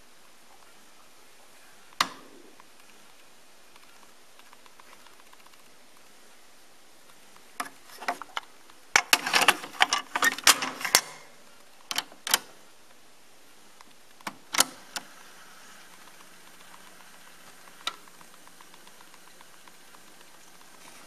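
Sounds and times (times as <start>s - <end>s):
cassette plastic clicks and clacks: 2.0s - 3.0s, 7.6s - 12.6s, 13.8s - 15.2s, 15.8s - 21.0s.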